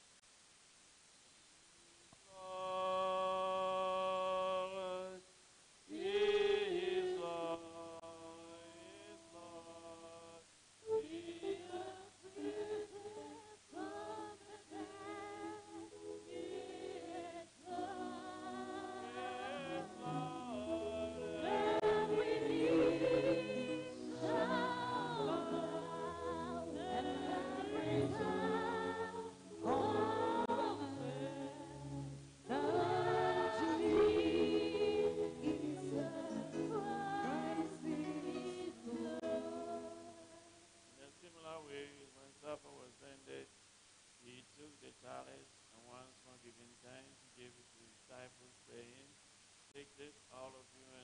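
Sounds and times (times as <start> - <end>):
choir singing a hymn: 5.9 - 9.3, 10.8 - 40.4.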